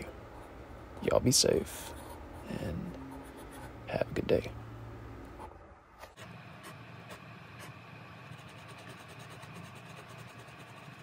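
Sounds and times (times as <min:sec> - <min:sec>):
steady low hum: 0:00.0 - 0:11.0
pen nib scratching on paper: 0:01.8 - 0:03.8, 0:06.6 - 0:11.0.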